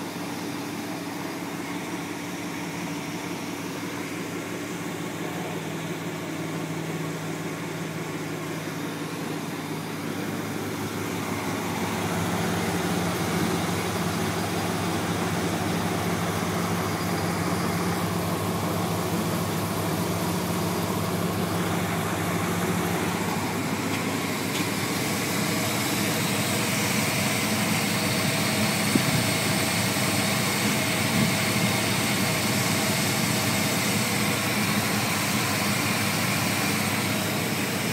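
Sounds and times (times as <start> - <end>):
truck engine idling: 0.0 - 37.9.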